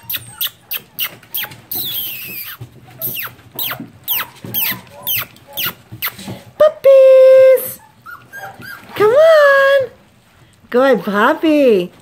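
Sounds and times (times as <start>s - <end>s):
puppies squeaking and whining: 0.0s - 6.6s, 7.3s - 10.0s.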